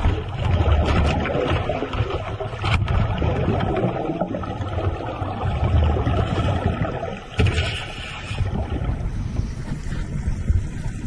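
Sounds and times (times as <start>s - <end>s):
churned water rumbling underwater: 0.0s - 11.0s.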